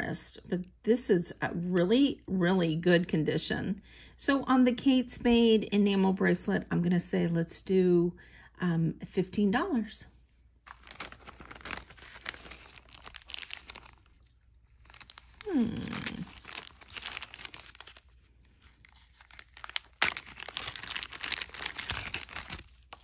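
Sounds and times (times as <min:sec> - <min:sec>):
packaging crinkling and rustling: 0:10.6 - 0:23.0.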